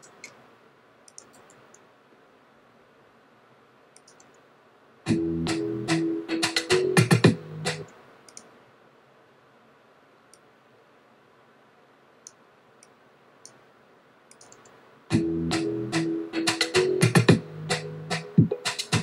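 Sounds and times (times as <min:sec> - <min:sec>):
faint clicks: 0:01.1 - 0:01.9, 0:04.0 - 0:04.4, 0:08.3 - 0:08.5, 0:14.3 - 0:14.8
electronic music with a beat: 0:05.1 - 0:07.9, 0:15.1 - 0:19.0.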